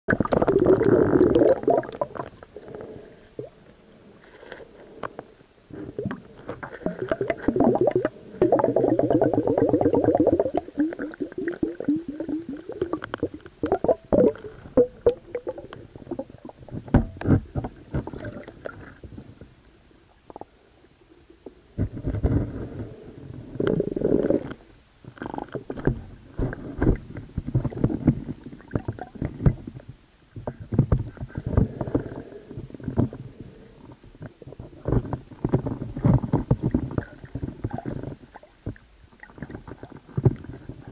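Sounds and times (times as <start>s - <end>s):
muffled underwater gurgling: 0.1s - 3.6s, 5.7s - 18.9s.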